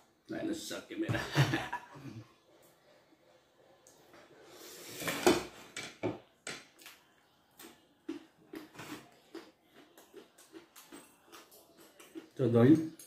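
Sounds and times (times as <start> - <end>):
person chewing with mouth open: 7.6 - 12.4.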